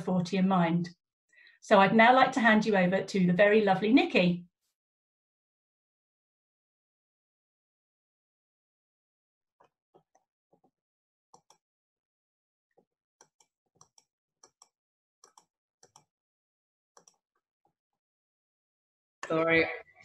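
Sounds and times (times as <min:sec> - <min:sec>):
faint irregular clicks: 0:13.2 - 0:16.1, 0:17.0 - 0:17.2.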